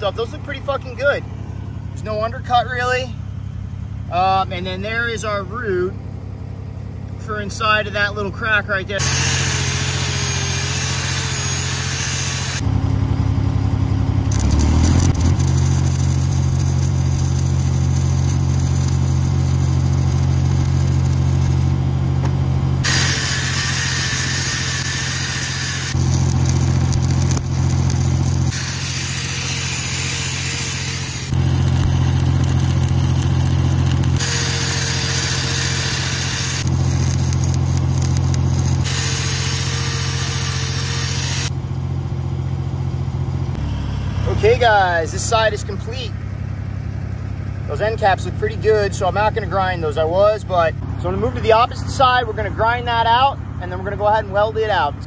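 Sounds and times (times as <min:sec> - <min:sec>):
crackling hiss of welding arc: 0:09.0 - 0:12.6, 0:14.3 - 0:21.8, 0:22.8 - 0:41.5
welding machine engine running: 0:09.0 - 0:45.6.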